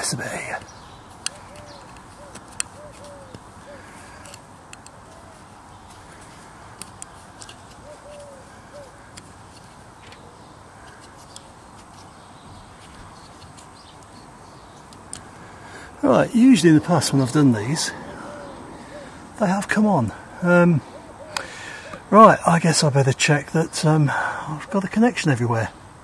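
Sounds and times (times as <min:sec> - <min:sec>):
faint bird calls: 0:00.0 - 0:22.4
light plastic clicks and taps: 0:04.2 - 0:05.0, 0:06.8 - 0:08.3.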